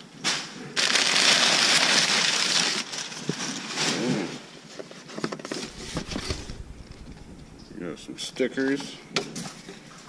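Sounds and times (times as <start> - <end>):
packing paper crinkling: 0.8 - 4.0, 5.0 - 7.6.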